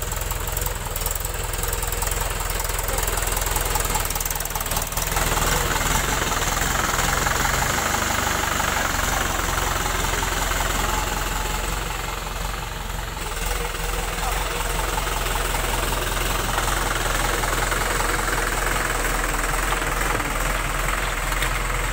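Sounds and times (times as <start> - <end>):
tractor diesel engine running: 0.0 - 21.9.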